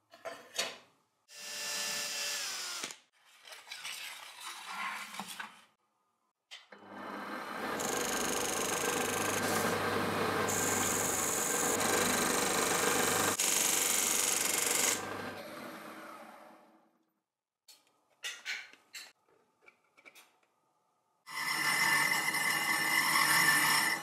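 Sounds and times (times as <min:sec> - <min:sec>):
metal lathe cutting: 0:07.0 - 0:13.4, 0:21.3 - 0:24.0.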